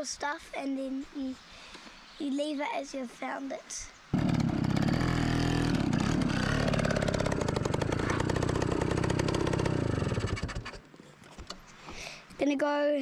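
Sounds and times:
engine running: 0:04.2 - 0:10.8.

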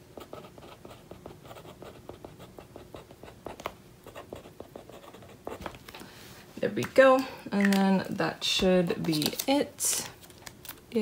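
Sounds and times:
marker pen writing on paper: 0:00.2 - 0:05.7.

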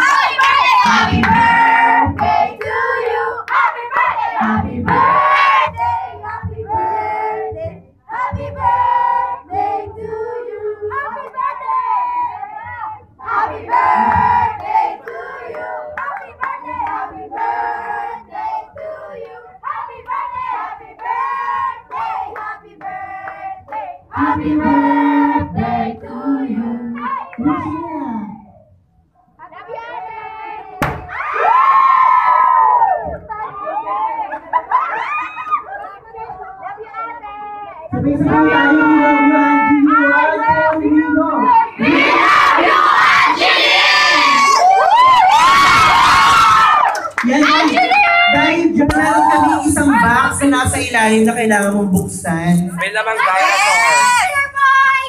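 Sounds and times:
group of people singing: 0:00.0 - 0:27.8, 0:37.8 - 0:44.7.

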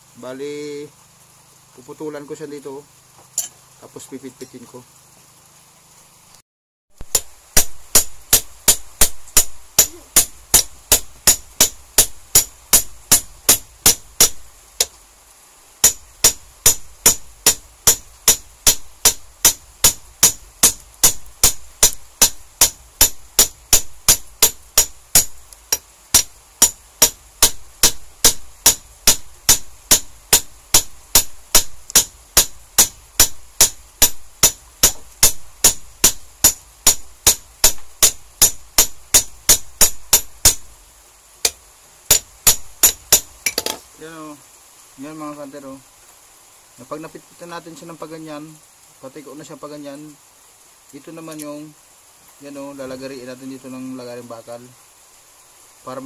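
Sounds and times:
hammer striking steel rod: 0:07.0 - 0:15.0, 0:15.8 - 0:40.6, 0:41.4 - 0:43.8.

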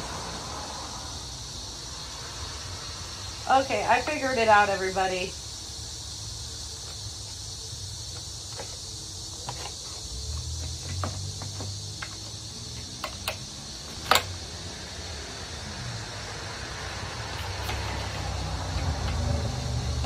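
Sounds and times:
plastic parts clicking and knocking: 0:13.0 - 0:14.3.

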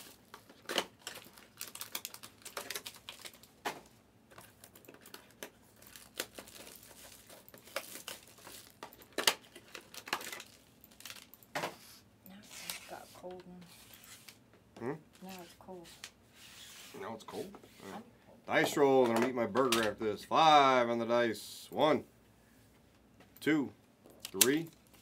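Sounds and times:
foil wrappers crinkling: 0:00.0 - 0:11.4.

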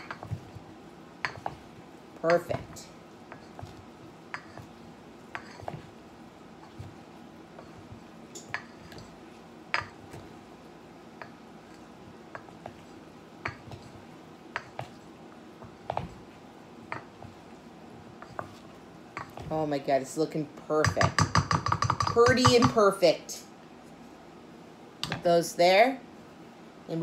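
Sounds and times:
wooden servers knocking metal bowl: 0:20.9 - 0:22.8.

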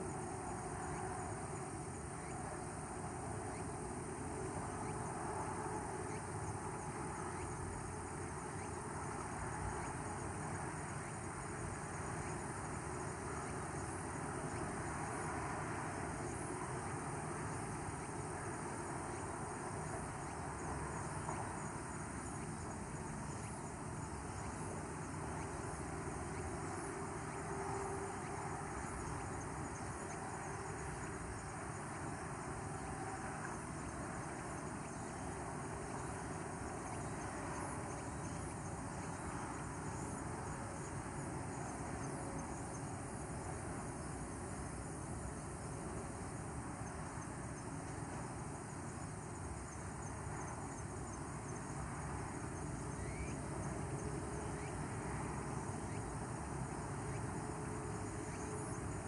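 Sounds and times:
insects chirring: 0:00.0 - 0:59.0
low rumble and hiss: 0:00.0 - 0:59.0.

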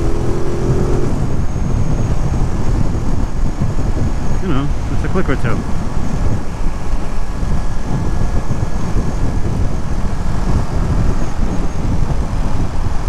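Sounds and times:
motorcycle cruising: 0:00.0 - 0:13.0
wind noise: 0:00.0 - 0:13.0.

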